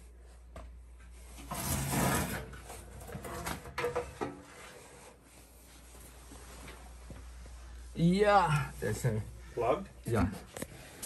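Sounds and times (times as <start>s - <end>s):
sheet metal scraping: 1.4s - 4.8s.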